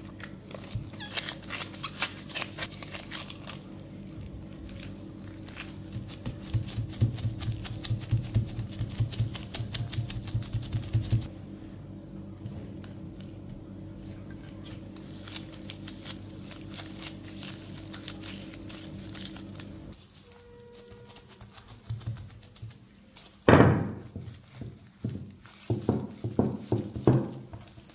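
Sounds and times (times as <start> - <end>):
steady low hum: 0.0 - 21.8
dough kneading thumps: 4.1 - 11.3, 21.0 - 27.9.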